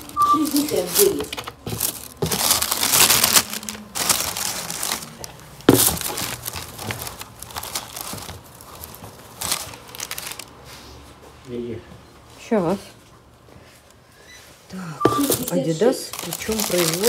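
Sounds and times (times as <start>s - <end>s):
packaging crinkling and rustling: 0.0s - 10.8s, 15.2s - 17.0s.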